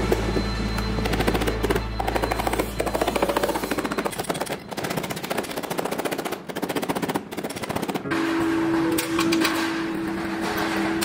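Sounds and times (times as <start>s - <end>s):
hammer strikes on sheet metal: 7.6s - 11.0s.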